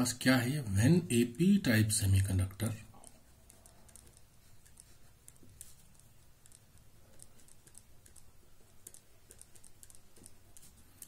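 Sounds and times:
low room hum: 0:00.0 - 0:11.0
pen scratching on paper: 0:03.0 - 0:11.0.

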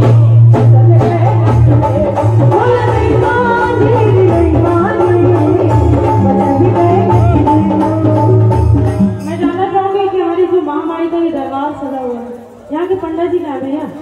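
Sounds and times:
drum beat: 0:00.0 - 0:11.0
woman singing a folk song: 0:00.6 - 0:01.9, 0:02.5 - 0:07.2.

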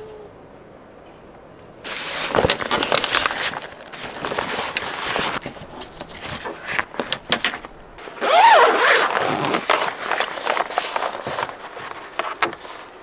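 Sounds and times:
fabric rustling: 0:01.9 - 0:13.0
zipper being drawn: 0:08.0 - 0:12.2.

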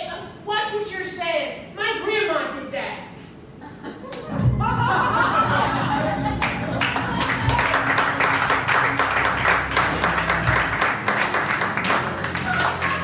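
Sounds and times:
quiet music: 0:04.3 - 0:13.0
audience applauding: 0:06.4 - 0:13.0.

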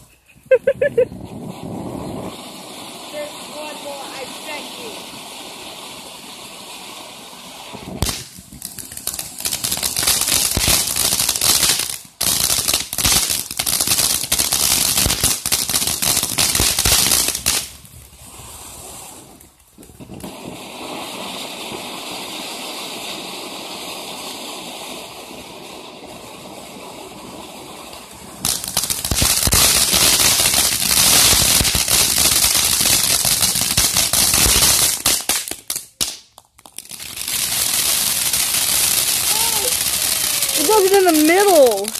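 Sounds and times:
firework hissing and crackling: 0:00.0 - 0:41.9
firework stars popping: 0:00.0 - 0:41.9.

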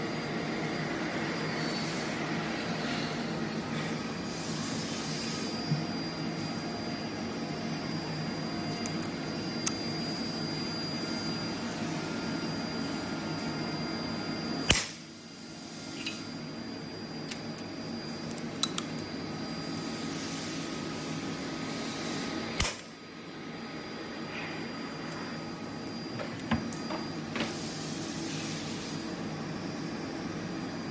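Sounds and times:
faint high whine: 0:00.0 - 0:30.9
stud welder sharp crack: 0:14.7 - 0:15.1, 0:22.6 - 0:22.9.

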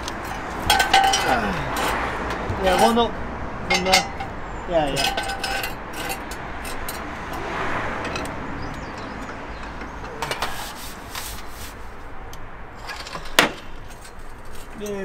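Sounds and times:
metal clicks and knocks: 0:00.0 - 0:03.0
sharp metallic clank: 0:03.7 - 0:07.1.

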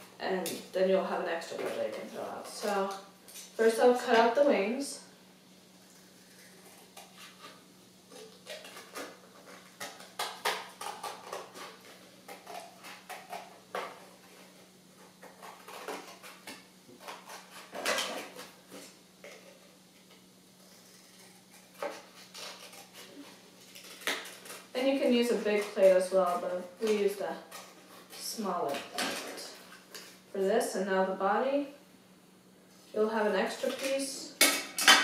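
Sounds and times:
faint steady hum: 0:00.0 - 0:35.0
scissors cutting paper plate: 0:15.0 - 0:18.5, 0:20.7 - 0:30.1.

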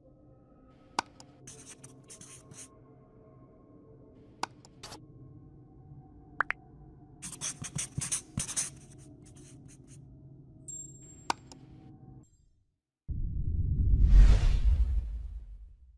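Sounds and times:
marker scratching on whiteboard: 0:01.0 - 0:02.7, 0:07.2 - 0:10.0.

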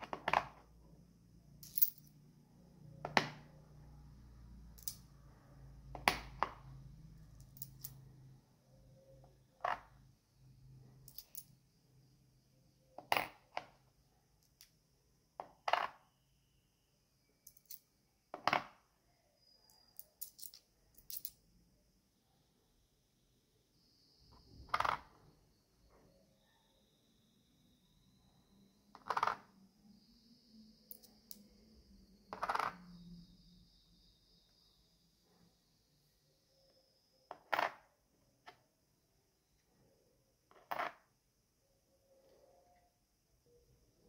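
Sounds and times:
coins clinking on a notebook: 0:01.6 - 0:02.2, 0:04.8 - 0:05.1, 0:07.4 - 0:08.0, 0:11.0 - 0:11.5, 0:17.4 - 0:17.9, 0:19.9 - 0:21.4, 0:40.5 - 0:41.0.

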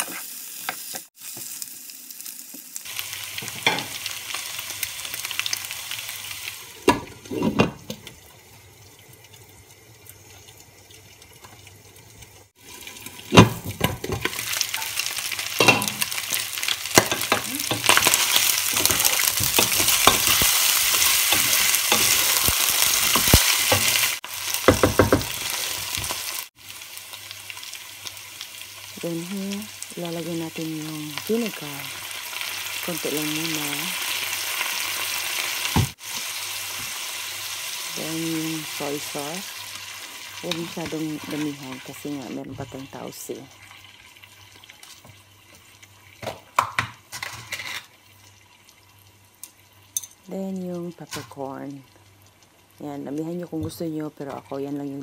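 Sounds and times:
meat sizzling in hot oil: 0:00.0 - 0:53.1
wooden spoon knocking pot: 0:24.7 - 0:25.4.

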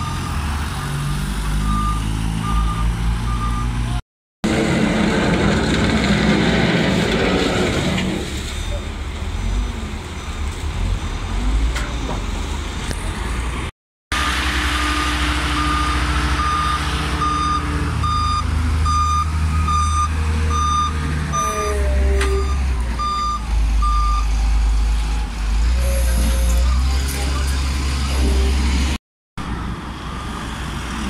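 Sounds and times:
diesel engine rumble: 0:00.0 - 0:31.0
reversing alarm beeping: 0:01.6 - 0:03.8, 0:14.9 - 0:24.3.

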